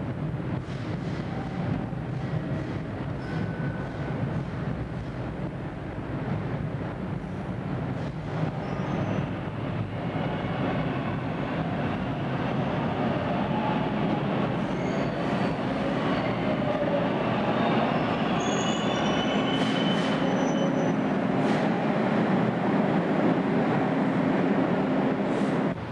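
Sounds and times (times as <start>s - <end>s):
subway train rumble: 0.0s - 25.9s
high brake squeals: 14.7s - 16.4s, 17.6s - 21.0s.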